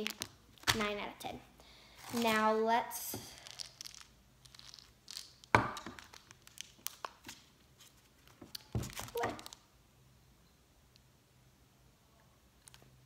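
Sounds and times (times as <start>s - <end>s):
plastic wrappers crinkling: 0.0s - 0.8s, 3.2s - 9.6s.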